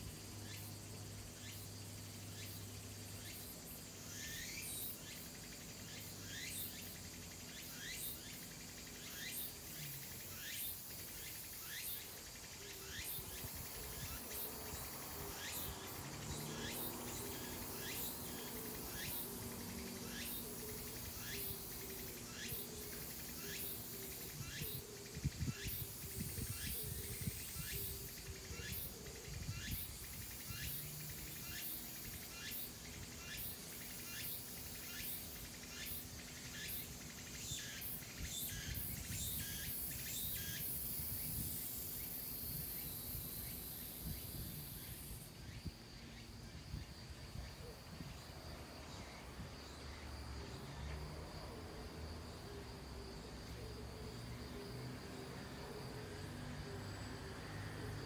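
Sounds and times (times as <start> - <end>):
insect chirping call: 0.0 - 58.0
wind rumbling on microphone: 24.4 - 28.5.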